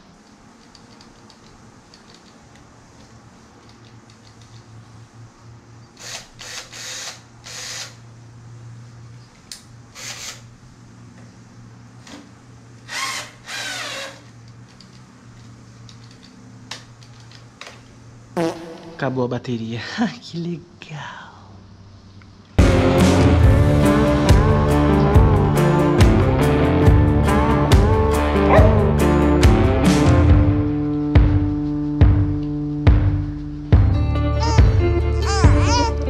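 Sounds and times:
cordless drill whirring: 0:06.0 - 0:08.0, 0:09.9 - 0:10.5, 0:12.8 - 0:14.3.

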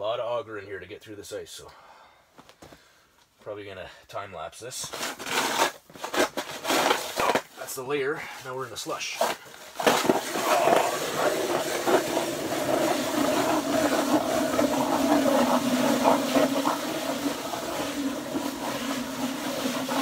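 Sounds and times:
auger scraping ice: 0:04.9 - 0:07.8, 0:08.8 - 0:20.0
ice auger humming: 0:09.8 - 0:20.0.

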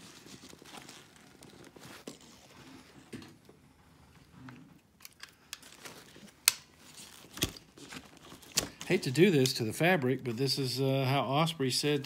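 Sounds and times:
nylon webbing rustling: 0:00.0 - 0:03.0, 0:05.3 - 0:09.4.

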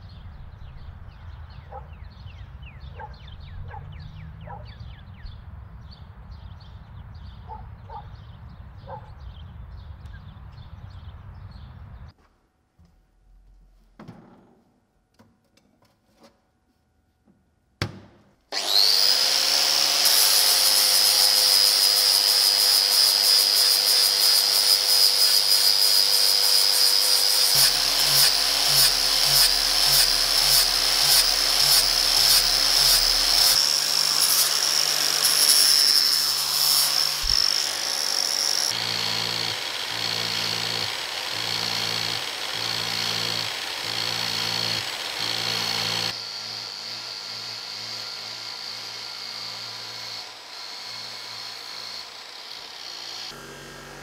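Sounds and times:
angle grinder grinding steel: 0:18.5 - 0:54.0.

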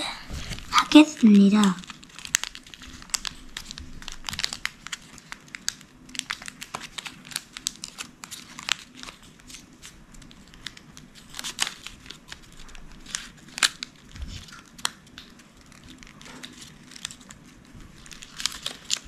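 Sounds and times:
paper crinkling and crackling: 0:00.0 - 0:19.0.

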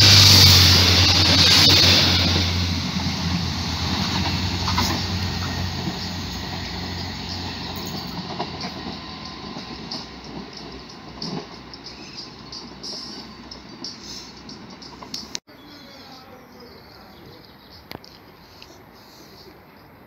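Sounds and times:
train wheels on rails rushing: 0:00.0 - 0:15.4.

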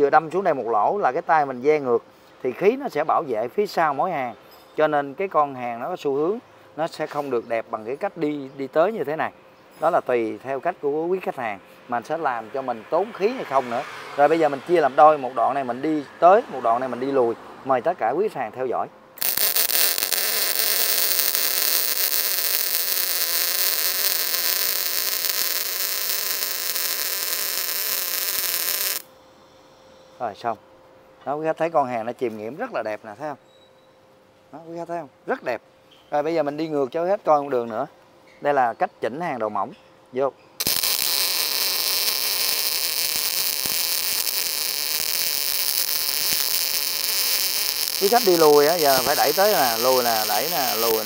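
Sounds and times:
welding arc hissing: 0:19.2 - 0:29.1, 0:40.6 - 0:51.0
welding pops: 0:19.2 - 0:29.1, 0:40.6 - 0:51.0.

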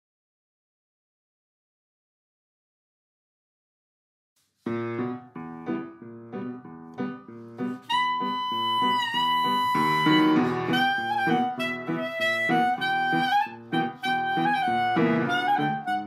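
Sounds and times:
instrumental music: 0:04.6 - 0:16.0.

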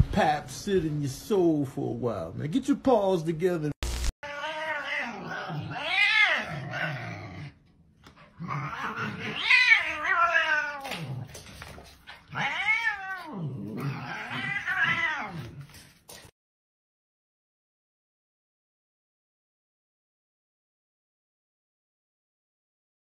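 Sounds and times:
cat yowling: 0:04.2 - 0:06.8, 0:08.5 - 0:11.1, 0:12.2 - 0:15.6
low growling: 0:05.0 - 0:07.7.

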